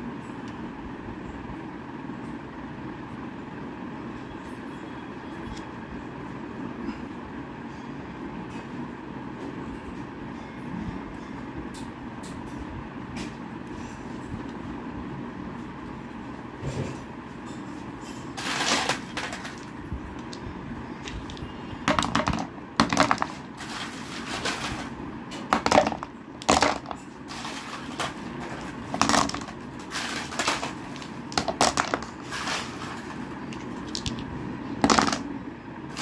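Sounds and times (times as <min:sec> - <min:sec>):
steady low hum: 0:00.0 - 0:36.0
stones knocking on wood: 0:21.1 - 0:23.4, 0:25.5 - 0:27.0, 0:29.0 - 0:29.6, 0:31.0 - 0:32.1, 0:34.8 - 0:35.2.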